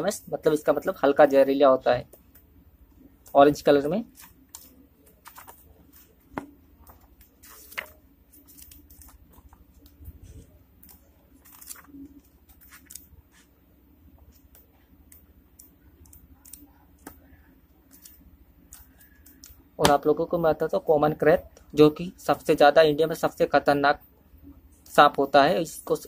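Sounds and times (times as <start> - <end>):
book pages flipping: 4.1 - 20.0.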